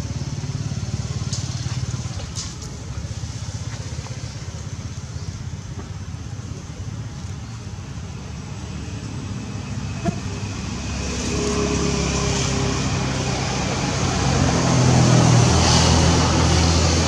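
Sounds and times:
engine running: 0.0 - 17.0.

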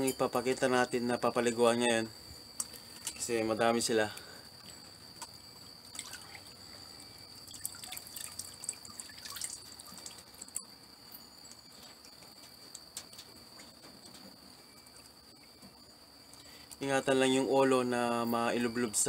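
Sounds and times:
water splashing in plastic bucket: 7.4 - 10.5.

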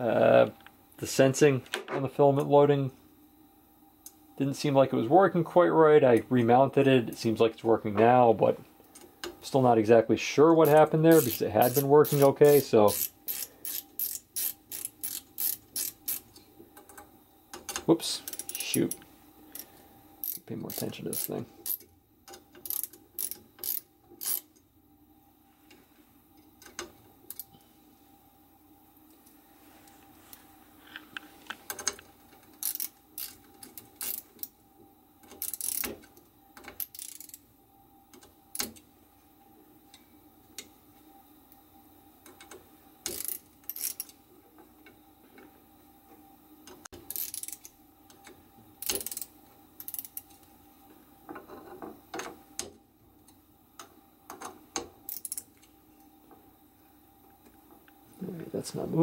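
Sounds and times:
faint steady hum: 0.0 - 59.0
ratchet wrench clicking: 10.6 - 16.3, 19.6 - 24.5, 31.7 - 34.5, 35.3 - 35.9, 36.6 - 37.4, 42.4 - 44.2, 47.1 - 47.7, 48.8 - 50.4, 55.1 - 55.5.

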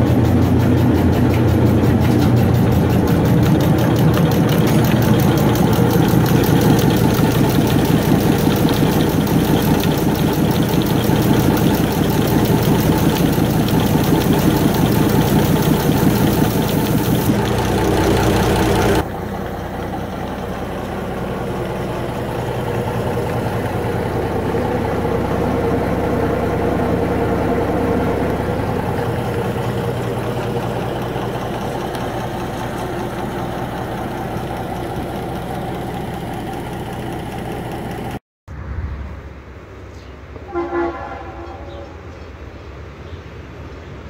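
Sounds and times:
diesel engine running: 0.0 - 39.7
train horn: 40.4 - 42.0.

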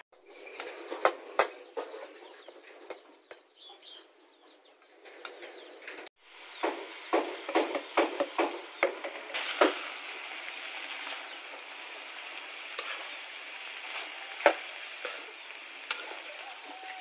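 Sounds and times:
meat sizzling: 8.6 - 17.0
metal spatula scraping wok: 10.8 - 17.0.

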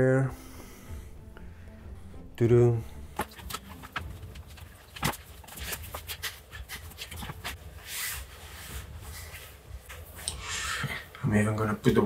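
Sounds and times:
clothing rustling on microphone: 3.1 - 11.1
fabric scrape: 3.2 - 10.9.

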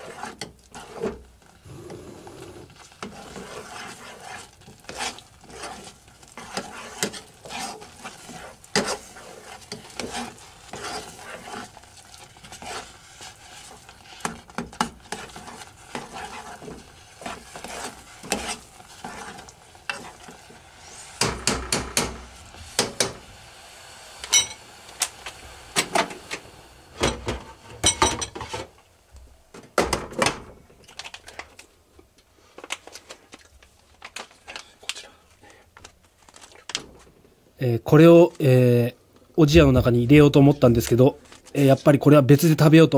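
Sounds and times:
spoon scraping pot: 0.0 - 22.2
spoon clanking against pot: 24.2 - 24.6.

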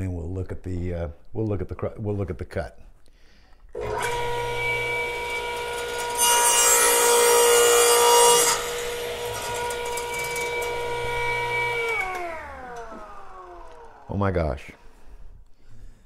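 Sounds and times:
saw blade cutting plywood: 3.8 - 15.2
saw motor whine: 3.8 - 15.2.

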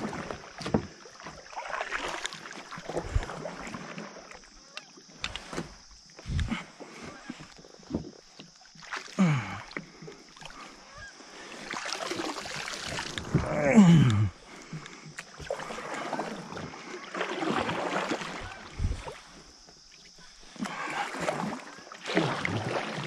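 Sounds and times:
paddle knocking against hull: 0.0 - 4.4
kayak creaking: 0.0 - 21.9
paddle splashing: 0.0 - 23.0.

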